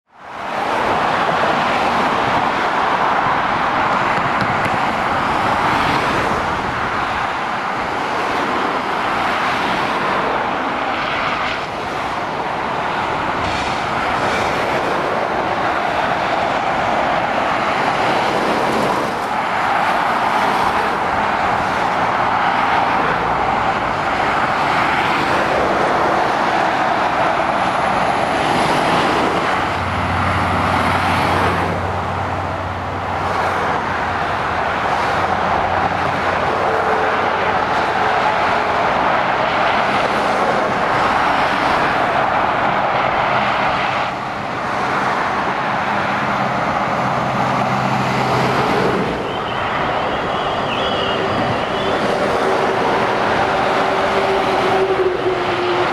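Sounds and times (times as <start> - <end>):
motorway traffic tyre noise: 0.0 - 55.9
lorry engine hum: 0.4 - 55.9.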